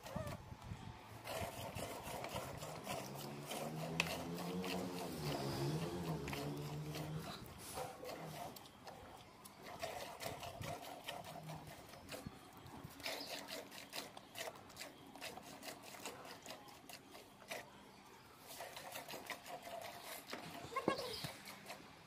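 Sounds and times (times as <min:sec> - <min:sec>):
milk squirting into steel bucket: 0:01.2 - 0:17.6, 0:18.4 - 0:22.0.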